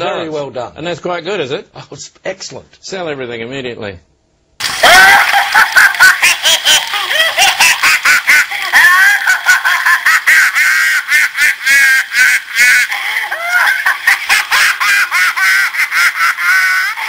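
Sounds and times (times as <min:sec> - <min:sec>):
high-pitched giggling laughter: 0:04.7 - 0:17.0.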